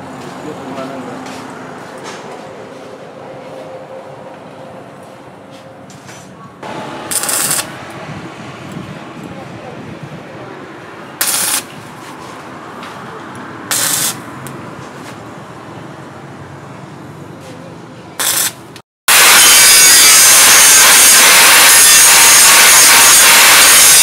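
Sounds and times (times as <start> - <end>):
angle grinder grinding steel: 6.6 - 8.0, 18.2 - 24.0
welding arc crackling: 6.6 - 8.1, 11.2 - 12.0, 13.7 - 14.6, 18.2 - 24.0.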